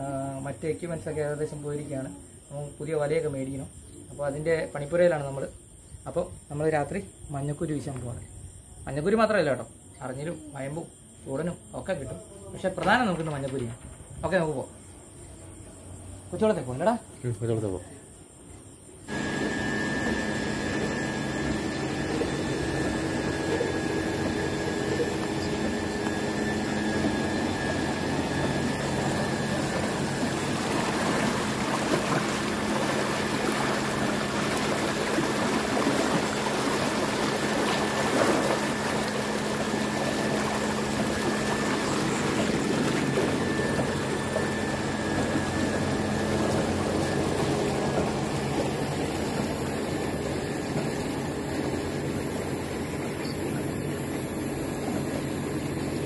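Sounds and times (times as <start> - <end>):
pump motor hum: 19.1 - 56.0
water pouring from pump outlet: 19.1 - 56.0.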